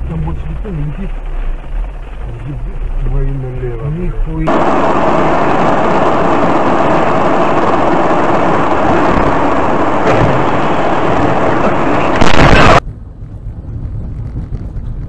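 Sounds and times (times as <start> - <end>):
road and engine noise inside car: 0.0 - 4.8, 11.5 - 15.0.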